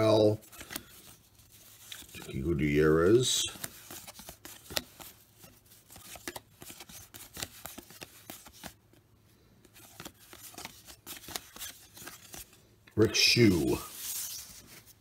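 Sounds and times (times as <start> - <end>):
cardboard cards flicking and rustling: 0.0 - 9.0, 9.6 - 12.6.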